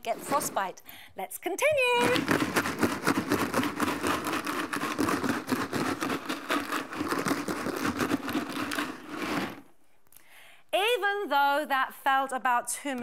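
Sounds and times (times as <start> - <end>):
ice and salt rattling in plastic jar: 1.8 - 9.6.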